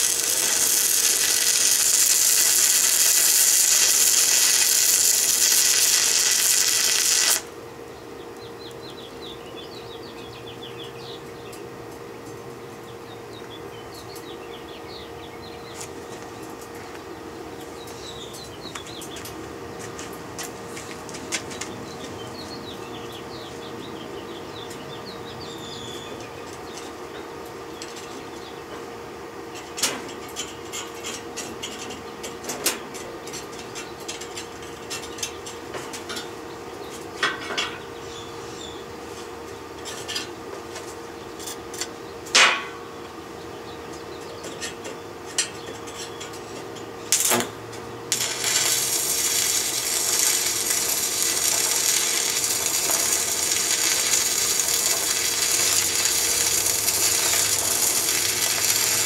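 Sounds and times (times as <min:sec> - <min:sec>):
welding arc crackle: 0:00.0 - 0:07.6, 0:47.1 - 0:59.0
steady hum: 0:00.0 - 0:59.0
birds chirping faintly: 0:07.6 - 0:20.1, 0:21.4 - 0:28.9, 0:41.0 - 0:47.1.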